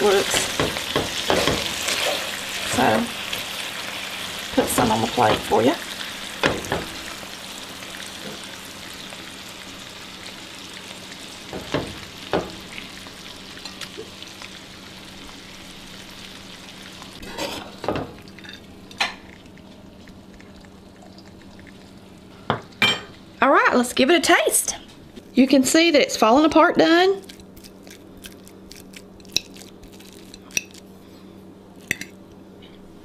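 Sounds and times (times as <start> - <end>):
meat sizzling in a frying pan: 0.0 - 18.2
utensils knocking against pan: 0.3 - 1.7.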